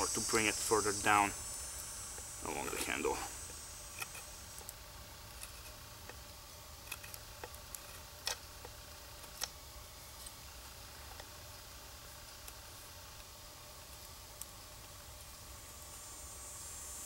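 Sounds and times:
knife shaving wood: 2.4s - 11.3s.

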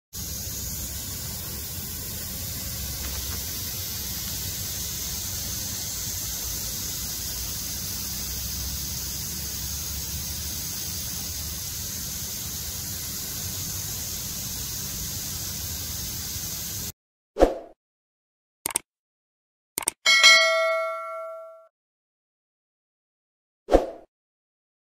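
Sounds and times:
steady hiss: 0.2s - 16.9s.

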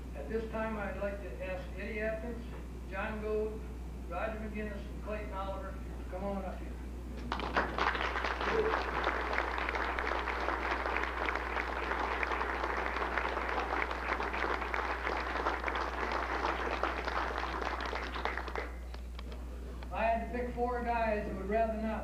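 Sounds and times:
audience applauding: 7.3s - 19.0s.

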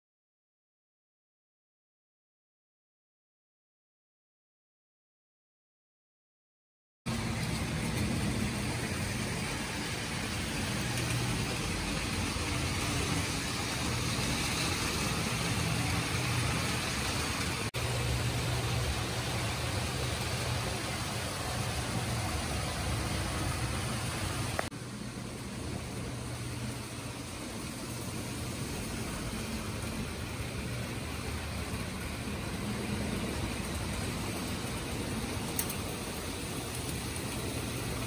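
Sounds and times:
model train wheels rumbling on track: 7.1s - 38.0s
motor hum: 7.1s - 38.0s.

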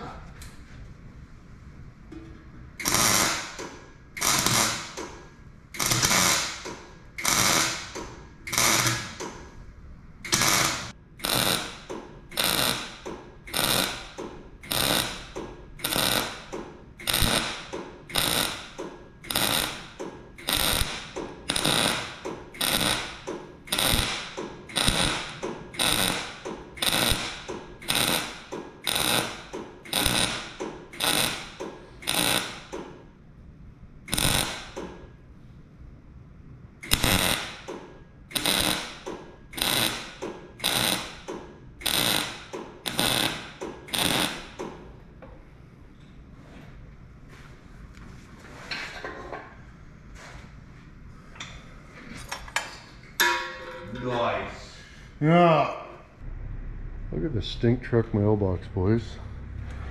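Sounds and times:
welding arc crackling: 2.8s - 5.1s, 5.8s - 9.3s, 10.2s - 32.7s, 34.1s - 34.8s, 36.8s - 37.7s, 38.3s - 44.6s.

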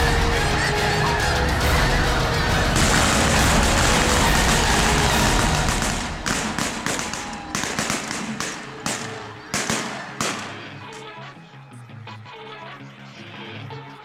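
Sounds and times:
geese calling: 0.0s - 14.0s
sharp bangs: 2.5s - 11.0s.

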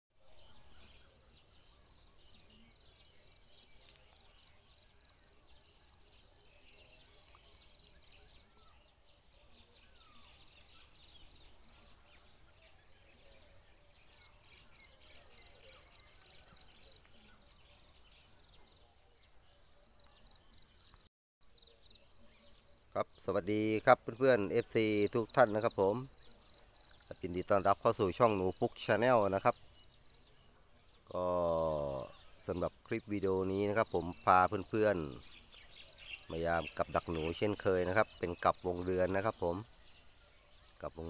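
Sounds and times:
short bird chirps: 0.2s - 23.2s.

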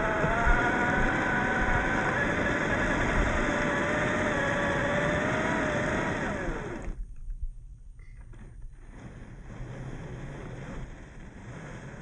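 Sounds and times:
toy truck motor whining: 0.0s - 7.0s.

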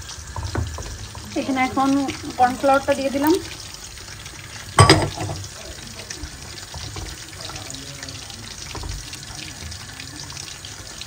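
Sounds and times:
soup bubbling in pot: 0.0s - 11.0s
wooden spoon stirring: 0.2s - 10.7s.

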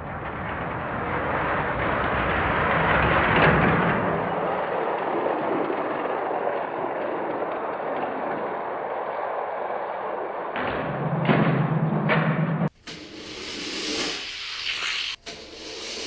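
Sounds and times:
toy cars rolling on plastic track: 0.0s - 10.5s.

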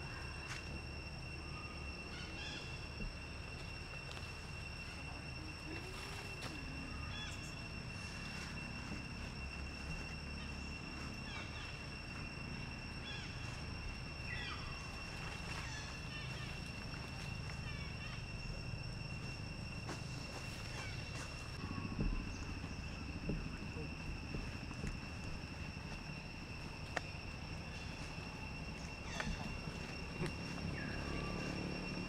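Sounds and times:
high-pitched insect drone: 0.0s - 32.0s
low rumble: 0.7s - 32.0s.

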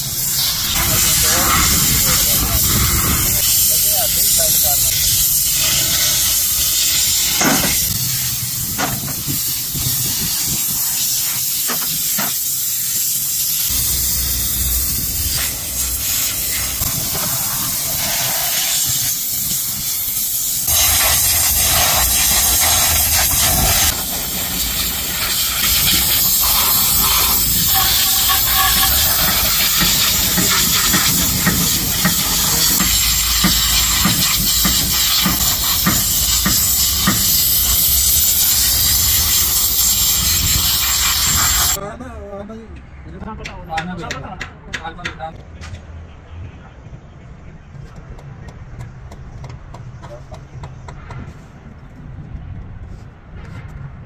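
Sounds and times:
compressed-air spray gun hissing: 0.0s - 41.8s.

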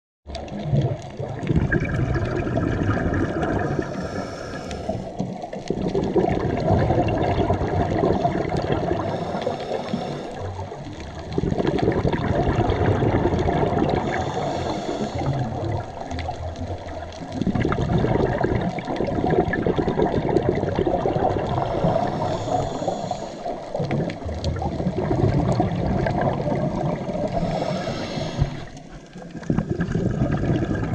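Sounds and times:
exhaled bubbles rushing: 0.3s - 30.9s
diver inhaling through regulator: 3.0s - 5.7s, 7.5s - 11.0s, 13.1s - 16.0s, 21.2s - 24.0s, 27.0s - 30.7s.

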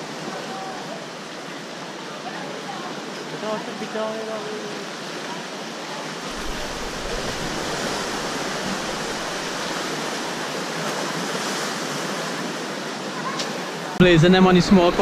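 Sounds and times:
sea waves splashing against rocks: 6.3s - 12.4s.

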